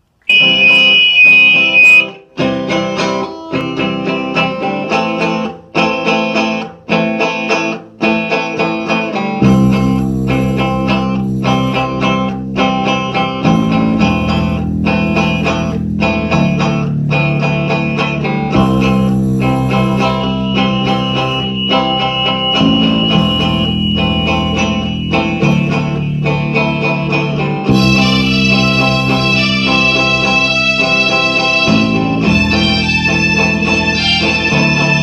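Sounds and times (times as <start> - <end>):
picked guitar notes: 0.2 - 35.0
low sustained bass: 9.4 - 35.0.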